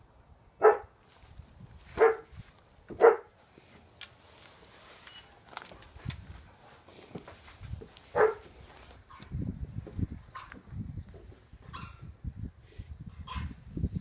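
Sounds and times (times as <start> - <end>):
another dog barking: 0.6 - 0.9, 2.0 - 2.3, 3.0 - 3.3, 8.1 - 8.4
dog barking: 0.6 - 0.9, 2.0 - 2.3, 3.0 - 3.3, 8.1 - 8.5.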